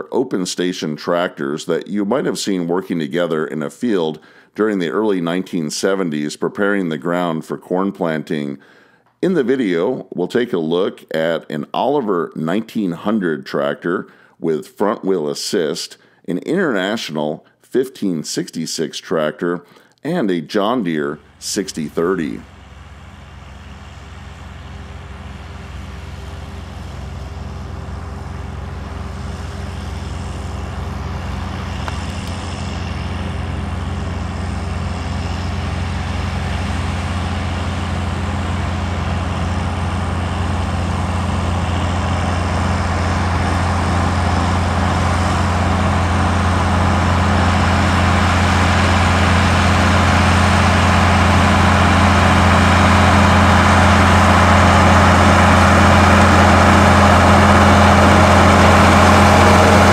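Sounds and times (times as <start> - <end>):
tractor diesel engine under load: 19.7 - 59.9.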